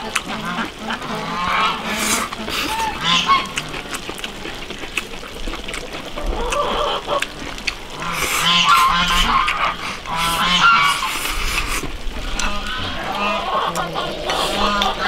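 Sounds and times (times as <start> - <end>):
farm fowl calling: 0.0 - 3.8, 6.2 - 7.3, 7.9 - 11.6, 12.2 - 15.0
chewing: 0.0 - 15.0.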